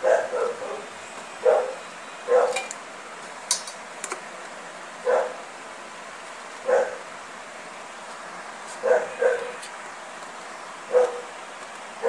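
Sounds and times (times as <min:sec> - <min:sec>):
dog barking: 0:00.0 - 0:02.7, 0:05.0 - 0:05.4, 0:06.6 - 0:07.0, 0:08.8 - 0:09.6, 0:10.9 - 0:11.4.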